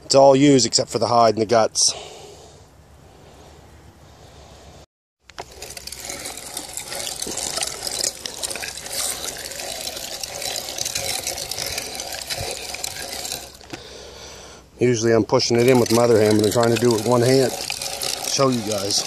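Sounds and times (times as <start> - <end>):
meat grinder running: 5.4 - 13.8, 15.6 - 19.0.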